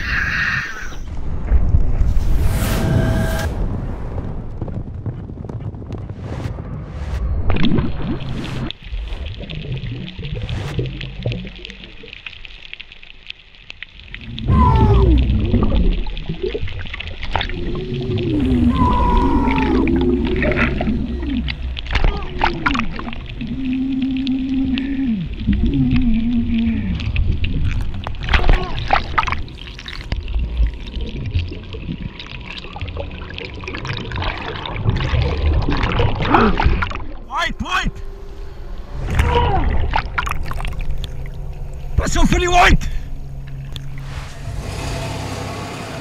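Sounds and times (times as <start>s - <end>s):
underwater crackle and clicks: 7.5s - 18.7s, 19.8s - 37.3s, 38.0s - 44.1s
whale moaning calls: 14.2s - 15.9s, 17.4s - 27.4s, 36.2s - 42.0s.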